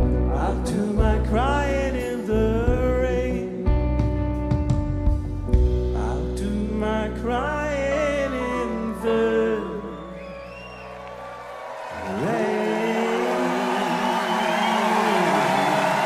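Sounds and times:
man singing wordless vocal: 0.0 - 3.9, 5.8 - 10.5, 12.0 - 15.6
live pop-rock band: 0.0 - 14.4
audience cheering and whooping: 9.0 - 16.0.

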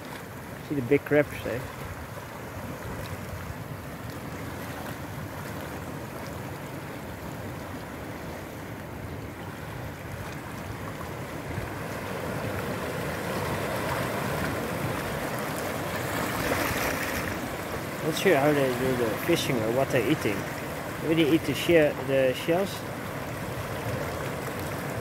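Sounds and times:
sea water splashing on rocks: 10.1 - 25.0.

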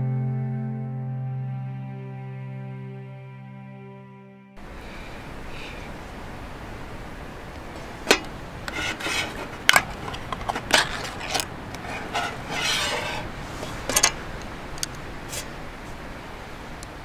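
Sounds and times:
can lid tearing: 8.9 - 13.1.

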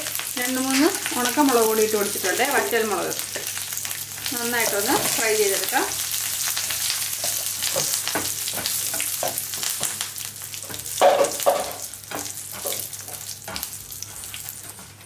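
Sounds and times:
spices sizzling in hot oil: 0.0 - 15.0
spatula scraping and tapping pan: 6.8 - 10.0, 10.6 - 15.0.

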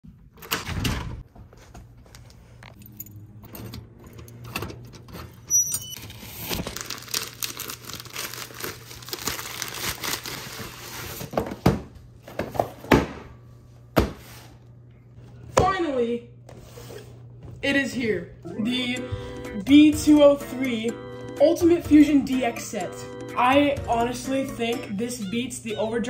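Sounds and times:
keys and mailbox door rattling: 2.7 - 6.0
plastic mailer crinkling: 6.0 - 11.4.

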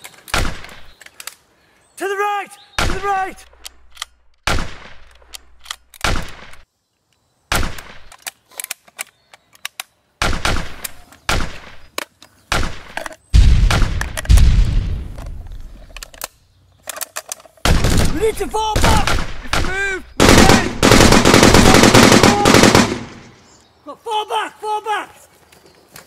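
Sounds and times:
rifle shots echoing: 4.4 - 5.1, 10.2 - 11.9, 12.5 - 15.4, 17.7 - 23.4
distant scattered gunshots: 10.2 - 11.9, 12.5 - 15.1, 17.7 - 23.4
heavy gunfire with deep rumble: 13.4 - 15.1, 17.7 - 23.3.

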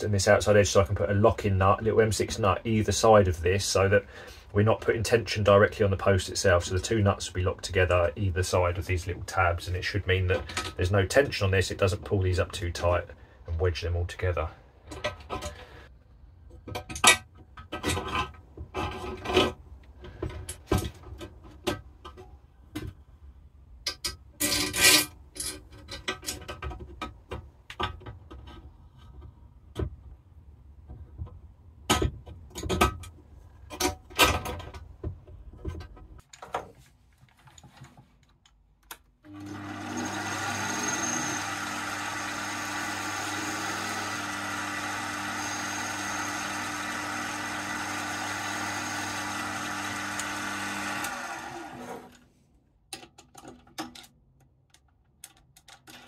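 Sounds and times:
metal clicks and knocks: 25.3 - 30.0, 30.8 - 36.7, 52.9 - 56.0
bench lathe running: 39.3 - 52.1.

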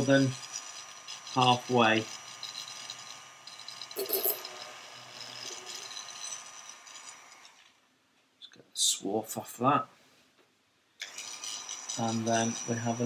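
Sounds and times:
rotary tool whining: 0.0 - 7.8, 11.0 - 13.0
rough grinding: 0.0 - 7.8, 11.0 - 13.0.

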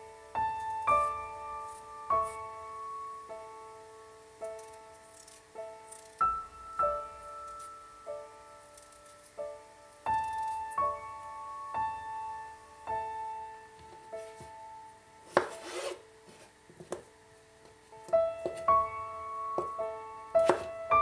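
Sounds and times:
soft piano music: 0.0 - 21.0
scraping rub: 15.3 - 16.5.

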